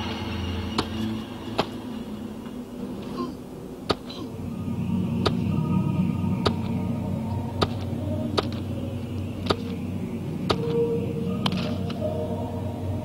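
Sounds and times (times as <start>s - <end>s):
low steady rumble: 0.0s - 13.0s
sharp snaps: 7.6s - 8.7s, 9.4s - 9.8s.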